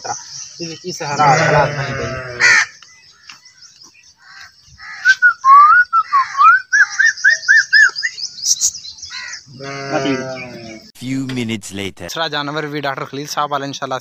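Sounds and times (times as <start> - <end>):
whistled gliding notes: 5.0 - 7.9.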